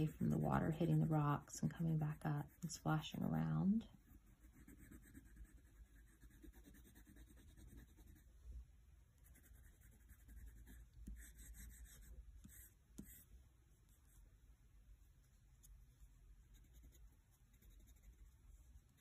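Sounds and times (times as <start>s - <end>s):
crayon scratching on paper: 0.0s - 1.4s, 4.0s - 8.2s, 9.2s - 13.3s, 16.5s - 19.0s.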